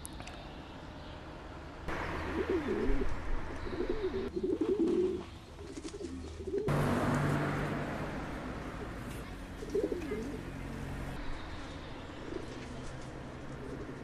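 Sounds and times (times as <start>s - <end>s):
pigeons cooing: 1.9s - 6.8s, 8.7s - 10.6s, 12.1s - 14.0s.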